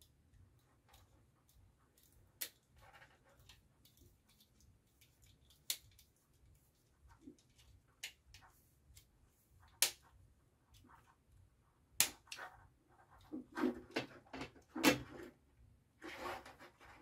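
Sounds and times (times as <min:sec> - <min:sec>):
small plastic parts clicking and rattling: 0:00.0 - 0:06.5.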